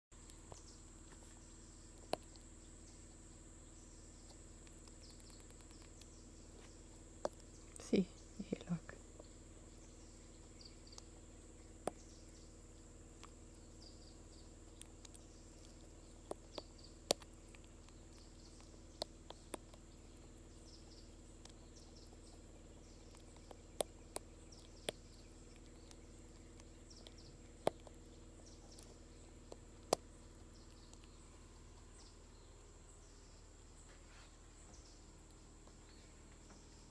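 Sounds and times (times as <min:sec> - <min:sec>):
steady low hum: 0:00.1 - 0:36.9
sharp suckling clicks and smacks: 0:02.0 - 0:02.5, 0:04.2 - 0:08.0, 0:10.4 - 0:12.1, 0:12.9 - 0:32.0.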